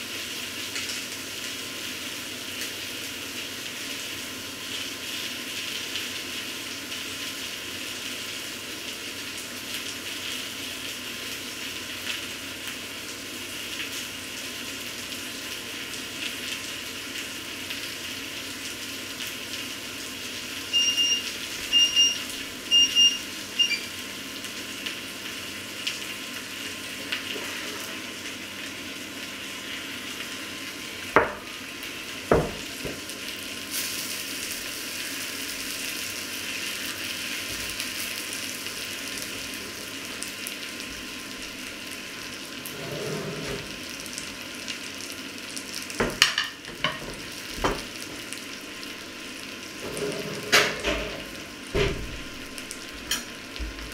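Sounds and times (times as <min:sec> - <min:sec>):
food sizzling in a frying pan: 0:00.0 - 0:53.9
short electronic beeps: 0:20.7 - 0:23.9
pan knocking on wooden table: 0:31.2 - 0:31.4, 0:32.3 - 0:33.0.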